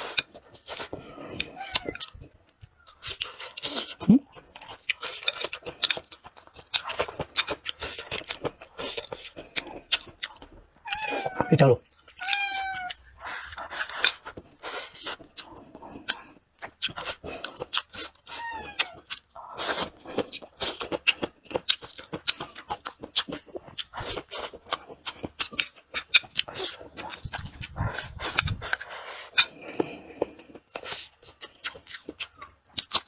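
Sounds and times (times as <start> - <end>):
close chewing with mouth clicks: 0.0 - 33.0
cat meowing: 1.5 - 2.1, 10.8 - 11.6, 12.2 - 13.0, 18.3 - 19.1.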